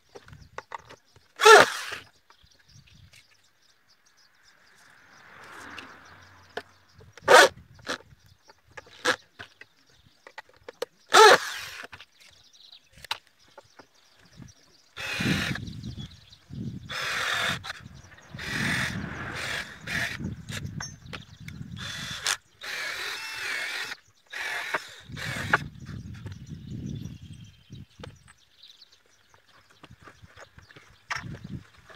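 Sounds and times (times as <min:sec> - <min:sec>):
cordless drill running: 0:01.4 - 0:02.0, 0:11.1 - 0:11.9, 0:15.0 - 0:15.7, 0:16.9 - 0:17.8, 0:18.4 - 0:20.6, 0:21.8 - 0:25.6
high-pitched squeal: 0:16.9 - 0:21.0.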